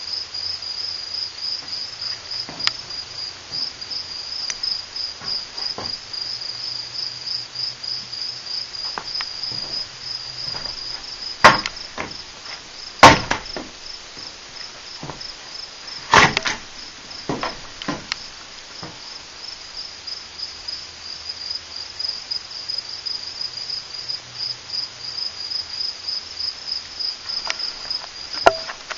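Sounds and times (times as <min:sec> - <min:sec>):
cricket chirping: 0:00.0 - 0:28.9
sharp knocks: 0:05.2 - 0:06.0, 0:08.9 - 0:14.3, 0:16.0 - 0:18.2.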